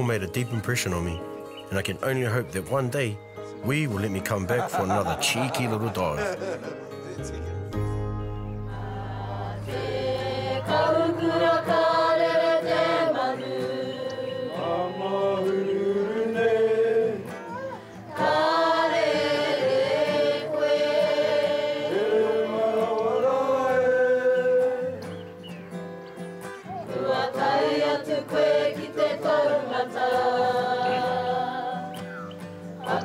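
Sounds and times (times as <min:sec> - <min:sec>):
choir singing in harmony: 0:04.5 - 0:07.2, 0:08.1 - 0:25.4, 0:26.7 - 0:32.2, 0:32.8 - 0:33.0.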